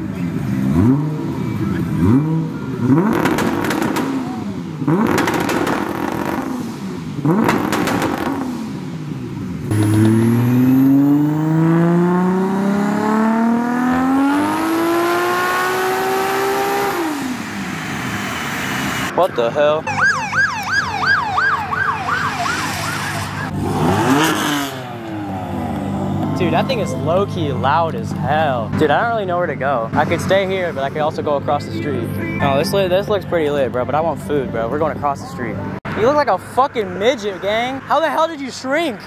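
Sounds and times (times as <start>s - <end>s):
car engine revving: 0.0s - 19.2s, 20.7s - 35.0s
exhaust cracks: 1.9s - 10.8s, 22.5s - 31.6s.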